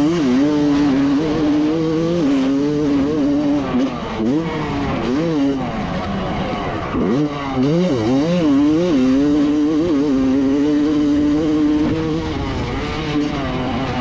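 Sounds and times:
motocross bike engine revving: 0.0s - 14.0s.

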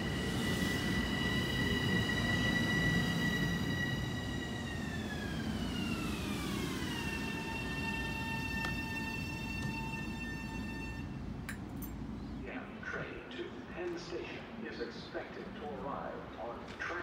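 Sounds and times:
train rolling rumble: 0.0s - 17.0s.

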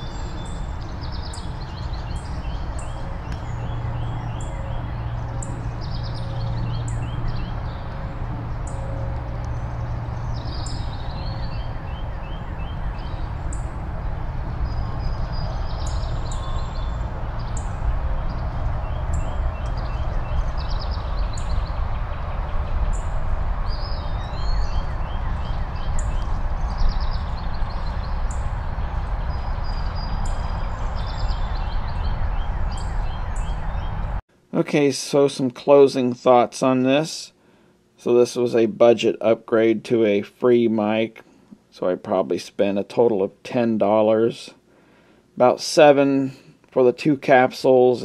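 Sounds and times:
birds chirping: 0.0s - 34.2s
distant highway traffic: 0.0s - 34.5s.

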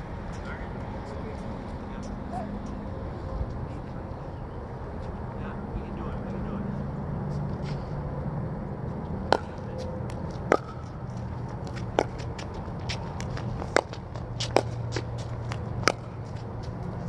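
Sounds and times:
paddle striking plastic ball: 9.3s - 9.6s, 10.5s - 10.9s.

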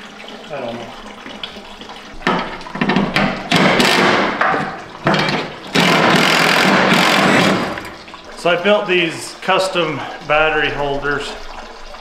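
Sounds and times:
power tool running: 3.5s - 4.3s, 5.7s - 7.9s.

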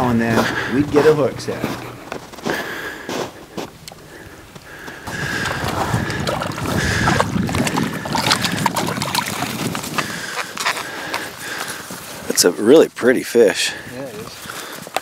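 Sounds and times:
boots crunching through snow: 0.0s - 3.8s.

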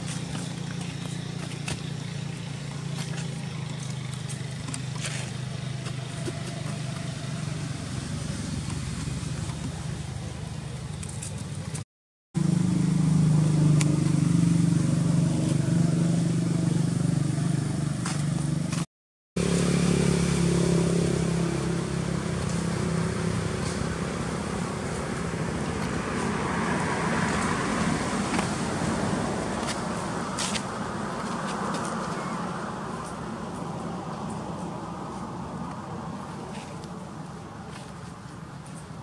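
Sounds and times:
motor engine humming: 0.0s - 11.8s.

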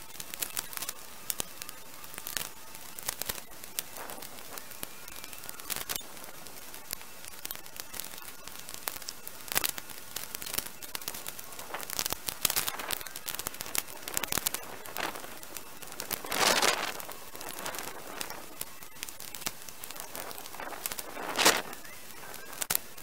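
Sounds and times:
branches crackling and snapping: 0.2s - 23.0s
brush rustling: 12.5s - 18.6s, 20.0s - 21.8s.

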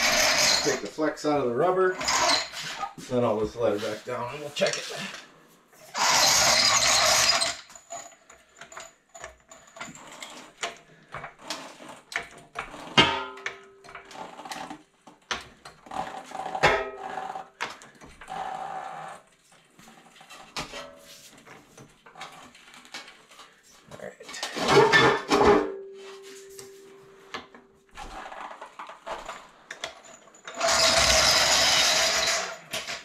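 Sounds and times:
floor jack creaking squeaks: 0.0s - 5.2s, 5.9s - 20.6s, 27.9s - 33.0s
floor jack clicks and knocks: 6.8s - 18.6s, 27.3s - 33.0s.

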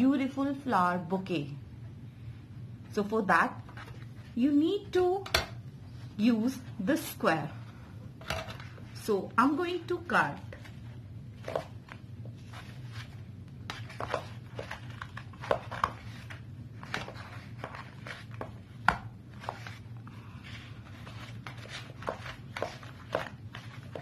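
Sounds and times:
low steady hum: 0.0s - 24.0s.

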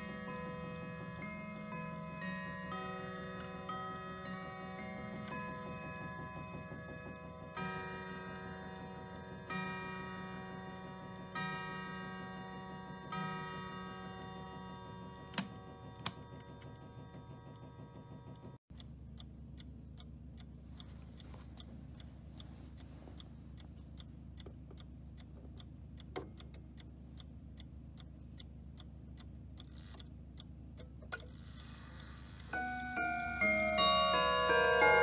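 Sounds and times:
clock chime notes ringing: 0.0s - 17.4s, 32.5s - 35.0s
clock ticking: 0.0s - 35.0s.

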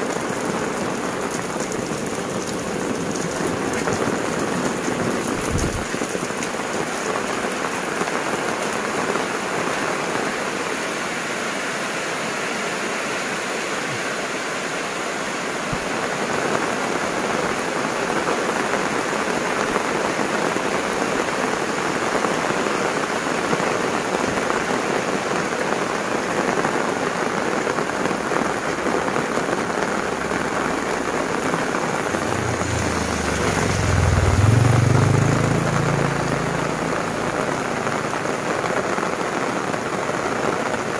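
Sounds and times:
heavy rain on leaves and umbrella: 0.0s - 40.9s
vehicle engine passing: 31.2s - 38.4s.

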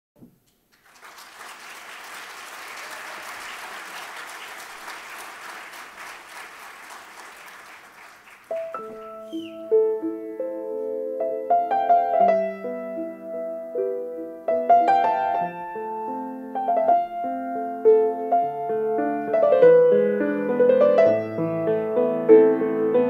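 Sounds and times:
audience applauding: 0.7s - 9.6s
slow piano notes: 8.5s - 23.0s.

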